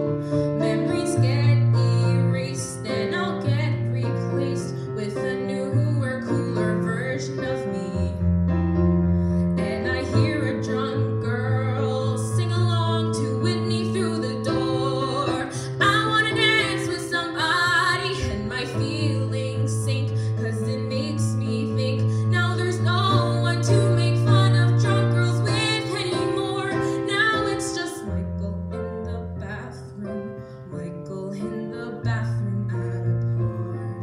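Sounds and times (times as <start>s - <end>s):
piano chords: 0.0s - 34.0s
girl singing: 9.6s - 33.1s.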